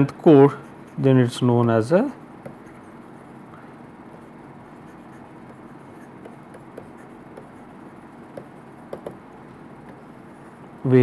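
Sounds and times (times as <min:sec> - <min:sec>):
steady background hiss: 0:00.0 - 0:11.0
stylus tapping on screen: 0:05.4 - 0:07.7, 0:08.3 - 0:10.1.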